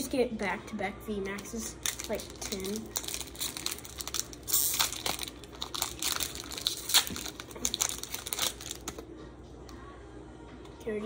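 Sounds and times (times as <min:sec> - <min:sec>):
foil wrapper crinkling and tearing: 0:01.8 - 0:09.0.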